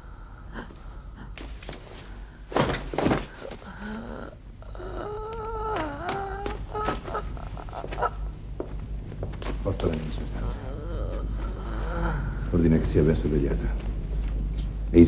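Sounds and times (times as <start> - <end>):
heavy thuds on floor: 2.5 - 3.7
person moaning: 3.6 - 8.4, 9.6 - 12.6.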